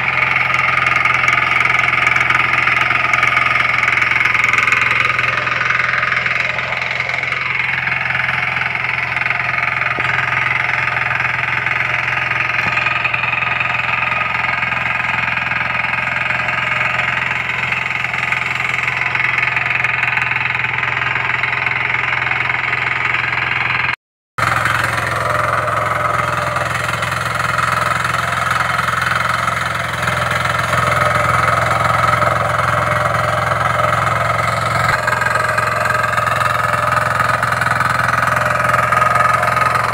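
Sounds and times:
small engine running steadily: 0.0s - 39.9s.

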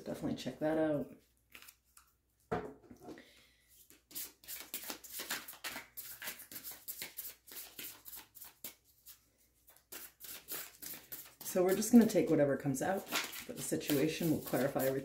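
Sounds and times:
cards being shuffled: 1.5s - 2.1s, 3.9s - 12.4s, 13.0s - 15.0s.

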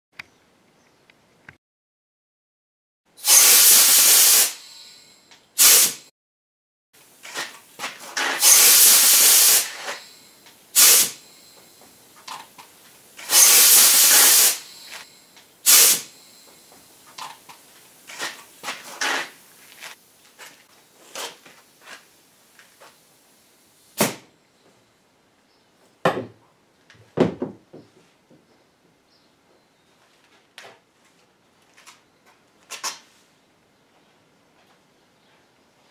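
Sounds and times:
aerosol spray paint hissing: 3.2s - 5.0s, 5.6s - 6.0s, 8.2s - 11.7s, 13.2s - 16.5s.

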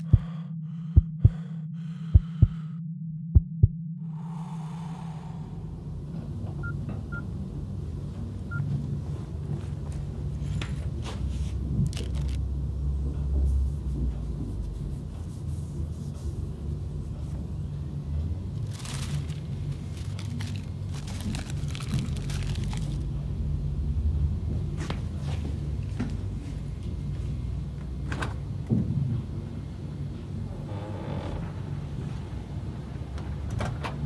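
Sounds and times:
low droning rumble: 0.0s - 6.7s, 16.0s - 24.8s
bag rustling crackles: 18.6s - 23.0s.

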